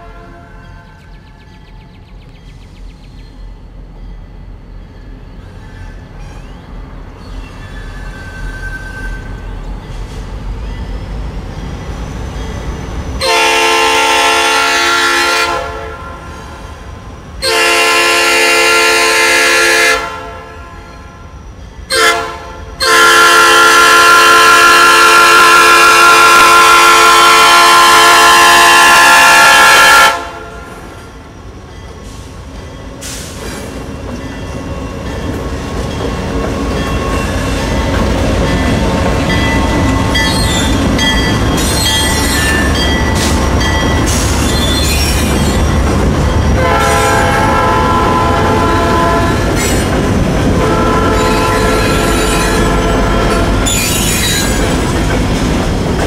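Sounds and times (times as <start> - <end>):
locomotive air horn blasts: 0.0 - 0.6, 13.2 - 16.5, 17.4 - 20.9, 21.9 - 30.7, 46.6 - 49.6, 50.6 - 53.8
locomotive engine and wheels rumbling: 0.0 - 56.0.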